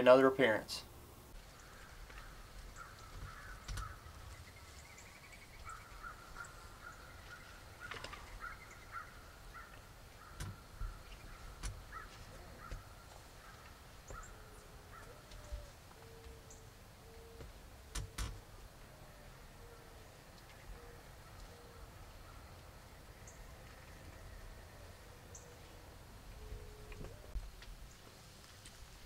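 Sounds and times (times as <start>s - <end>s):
wild turkeys calling softly: 1.3s - 17.6s, 18.8s - 28.8s.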